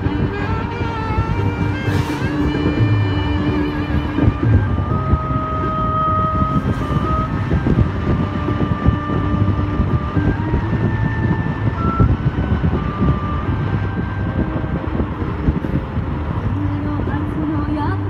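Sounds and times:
slow music with held notes: 0:00.0 - 0:15.9
car engine and road rumble: 0:00.0 - 0:18.0.

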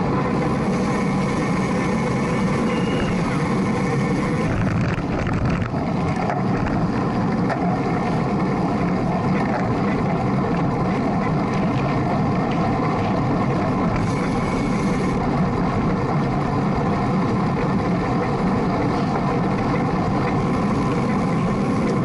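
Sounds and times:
wind noise on microphone: 0:02.7 - 0:07.3.

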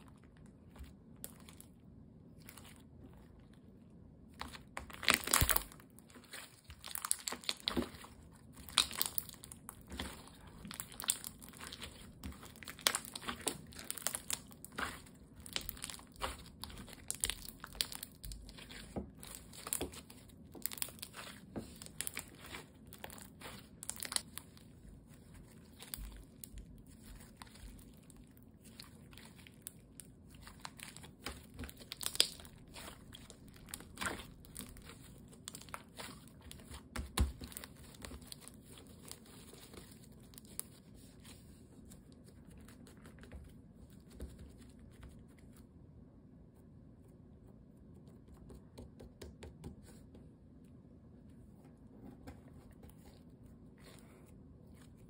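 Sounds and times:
slime crackling and popping: 0:04.3 - 0:40.8.

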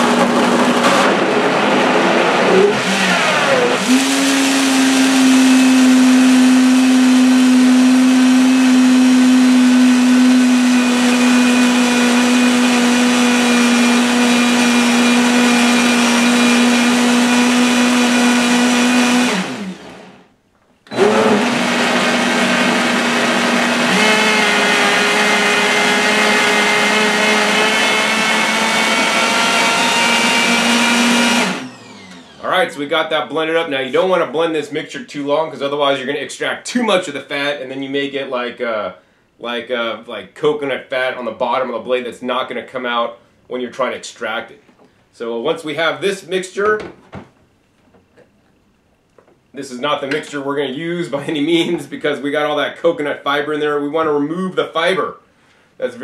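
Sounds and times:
blender running on high: 0:00.0 - 0:20.2, 0:20.9 - 0:32.6.

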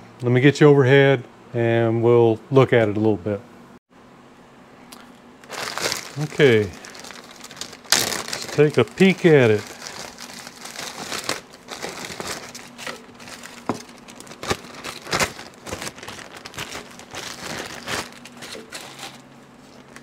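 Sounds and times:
plastic bag crinkling: 0:05.4 - 0:20.0.

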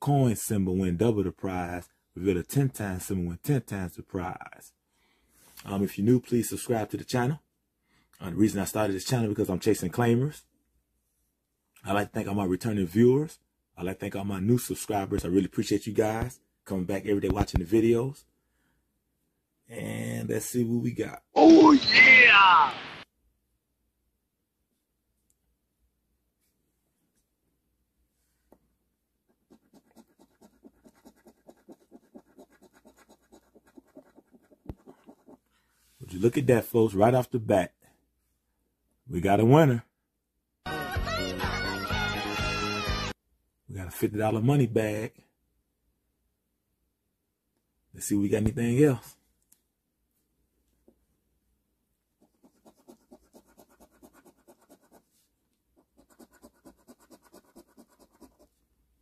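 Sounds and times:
coin scratching lottery ticket: 0:29.5 - 0:35.4, 0:52.2 - 0:55.0, 0:55.9 - 0:58.5.

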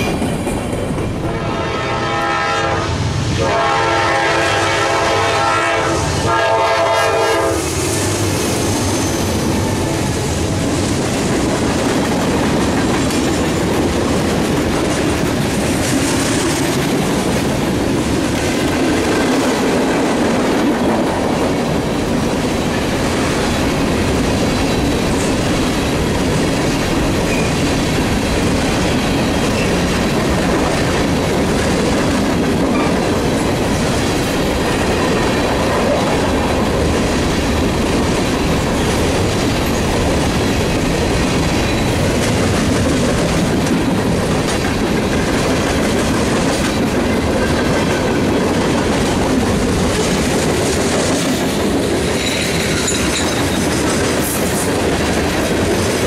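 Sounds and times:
train air horn: 0:01.3 - 0:08.0
freight cars rumbling and clattering: 0:07.8 - 0:56.0.

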